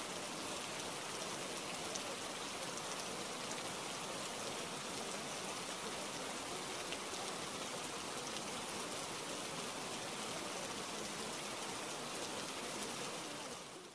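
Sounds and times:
steady rain hiss: 0.0s - 13.9s.

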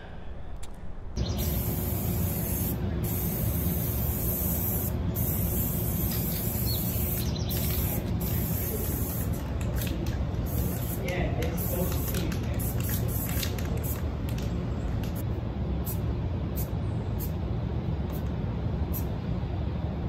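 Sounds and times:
spray paint can hissing: 1.2s - 15.2s, 16.6s - 17.4s, 18.1s - 18.3s, 18.9s - 19.1s.

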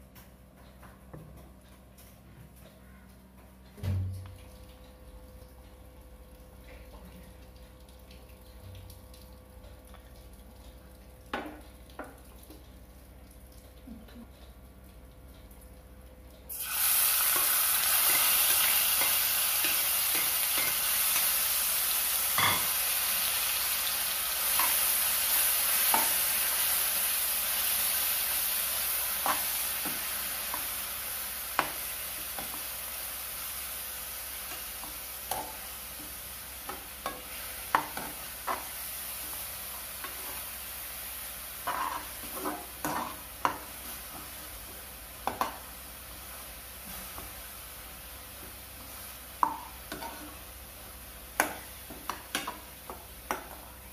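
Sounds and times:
vegetables sizzling in hot oil: 16.5s - 53.9s.

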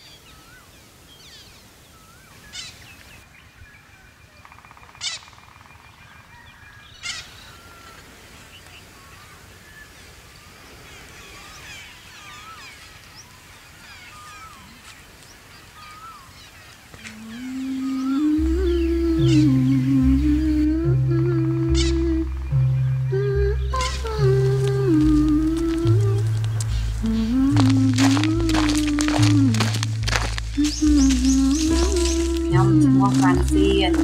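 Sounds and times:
birds calling and chirping: 0.0s - 34.0s
low held music tone: 17.2s - 34.0s.

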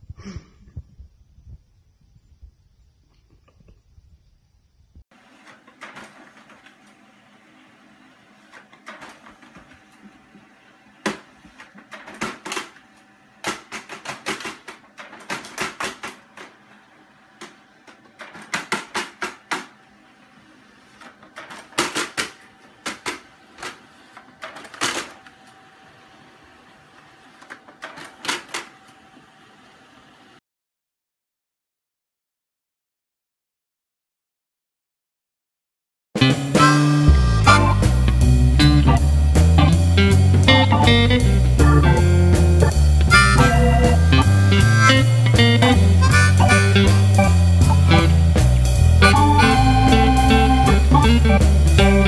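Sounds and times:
printer humming: 5.2s - 30.4s, 36.6s - 52.0s
printer clicking and clattering: 5.4s - 6.8s, 8.5s - 19.8s, 20.9s - 25.5s, 27.0s - 29.0s.

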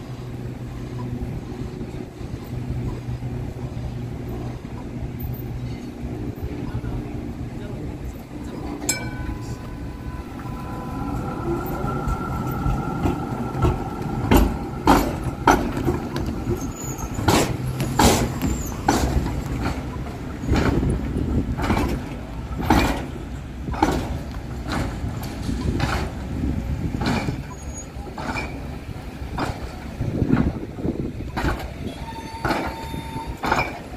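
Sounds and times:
tram rumbling: 0.0s - 33.9s
steel wheels clacking over rail joints: 8.2s - 33.9s
high whine: 8.4s - 17.3s.

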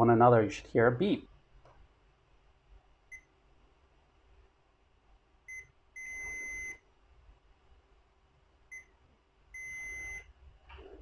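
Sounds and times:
multimeter beeping: 5.5s - 6.8s, 9.6s - 10.3s.

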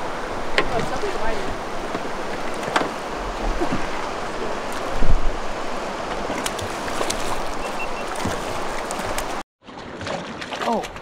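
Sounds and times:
river water rushing: 0.0s - 10.8s.

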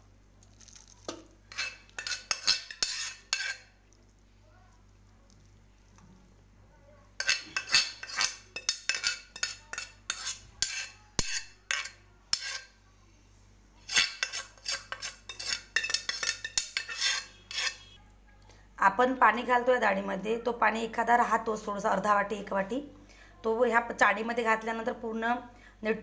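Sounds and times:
spoon scraping steel strainer: 0.6s - 3.8s, 7.2s - 12.7s, 13.8s - 18.0s.

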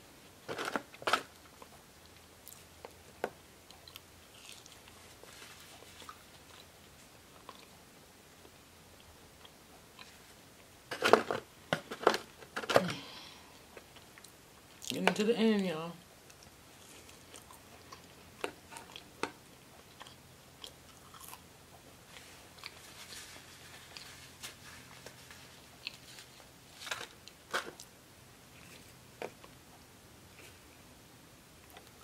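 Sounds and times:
person chewing fries: 2.4s - 7.8s, 16.2s - 28.0s.

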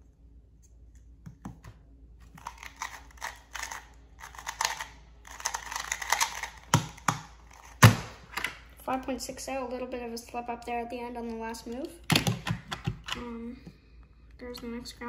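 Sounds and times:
puzzle cube plastic clicking: 2.4s - 8.6s.

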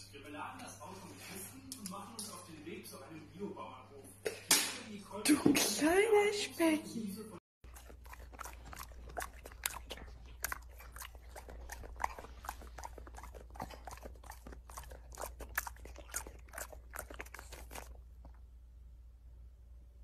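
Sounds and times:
dog crunching popcorn: 7.6s - 18.5s
low steady hum: 7.7s - 20.0s.

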